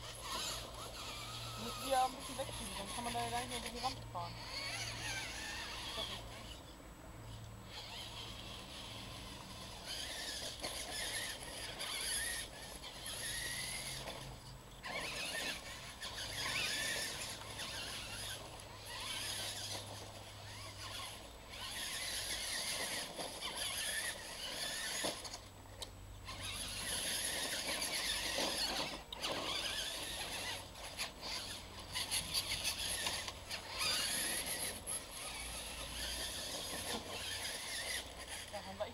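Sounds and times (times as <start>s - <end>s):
rc truck motors whining: 0.0s - 38.9s.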